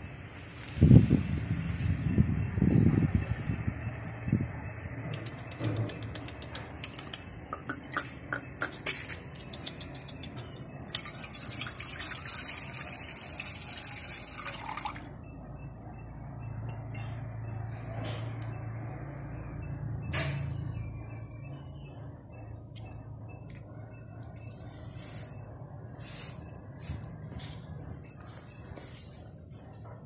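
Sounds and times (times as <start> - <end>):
small clicks and taps: 5.1 - 10.7
wine pouring into metal bowl: 10.8 - 15.1.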